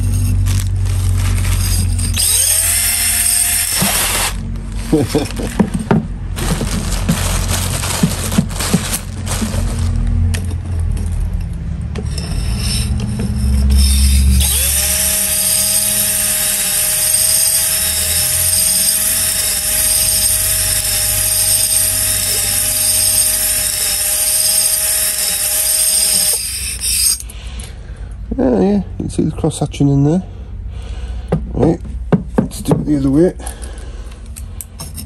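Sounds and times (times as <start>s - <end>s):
hone stones scraping cylinder: 0.0s - 27.4s
cordless drill motor whine: 1.6s - 4.9s, 13.5s - 27.2s
handling knocks and rubbing: 4.6s - 12.1s, 31.3s - 33.1s.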